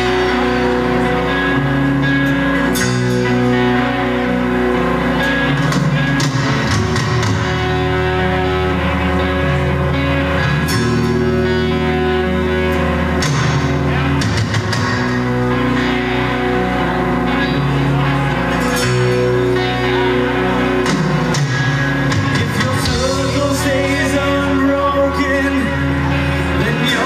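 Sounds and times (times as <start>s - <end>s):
live rock band playing: 0.0s - 27.0s
person's voice: 22.3s - 27.0s.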